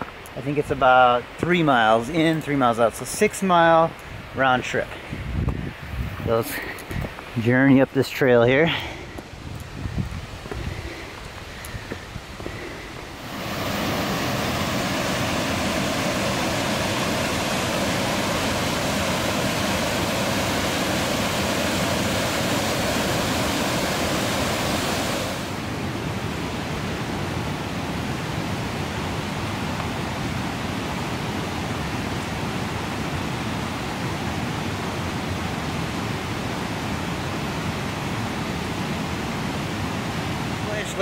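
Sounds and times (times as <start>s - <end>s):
white water rushing: 10.7s - 41.0s.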